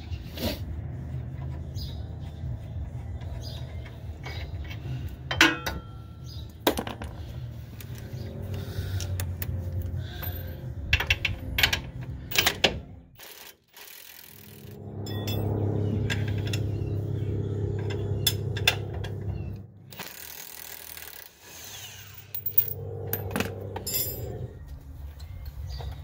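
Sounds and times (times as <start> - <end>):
low hum: 0.7 - 13.2, 14.3 - 20.0, 22.1 - 26.0
metal tools clinking: 3.8 - 6.3, 15.0 - 16.8, 22.1 - 25.8.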